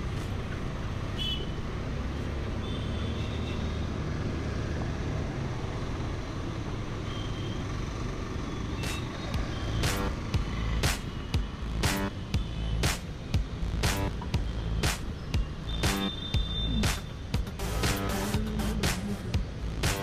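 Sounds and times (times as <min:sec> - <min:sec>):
motorbike engine and road noise: 0:00.0 - 0:20.0
short horn beeps: 0:15.7 - 0:17.0.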